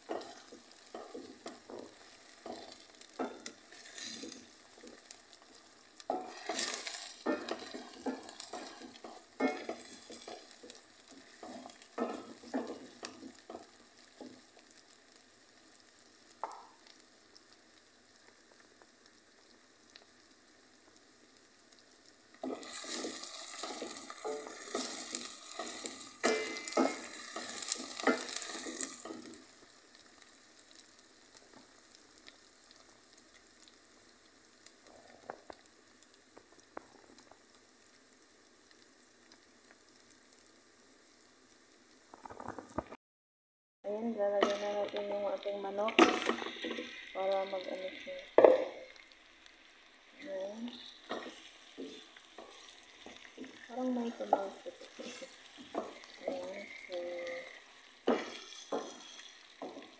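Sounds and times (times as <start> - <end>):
spoon stirring in pan: 0.0 - 15.2, 16.3 - 17.0, 22.3 - 32.4, 44.3 - 59.9
food sizzling in oil: 0.0 - 43.0, 43.9 - 59.9.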